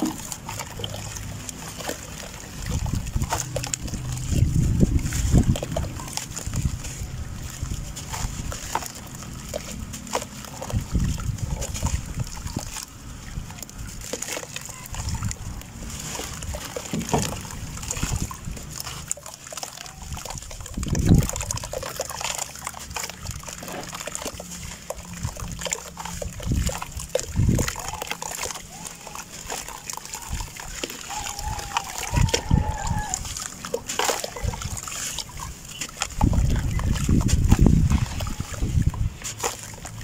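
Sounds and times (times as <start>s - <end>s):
muddy water plopping and sloshing: 0.0s - 40.0s
water splash: 0.0s - 40.0s
wet dirt crumbling: 0.0s - 40.0s.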